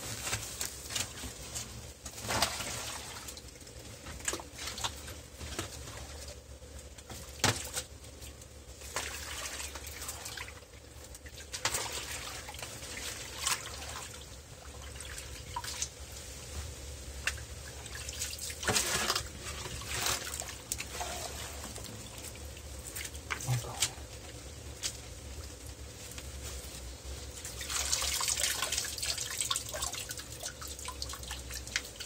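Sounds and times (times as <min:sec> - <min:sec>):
shallow water splashing: 0:08.8 - 0:15.9.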